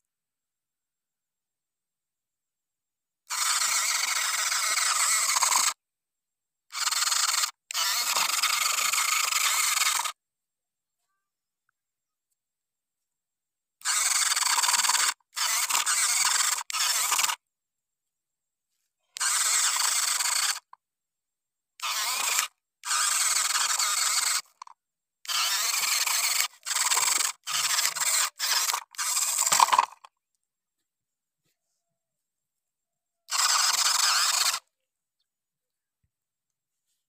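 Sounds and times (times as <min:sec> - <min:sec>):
toy motor grinding buzz: 0:03.3 - 0:05.8, 0:06.7 - 0:10.2, 0:13.8 - 0:17.4, 0:19.2 - 0:20.8, 0:21.8 - 0:30.1, 0:33.3 - 0:34.7.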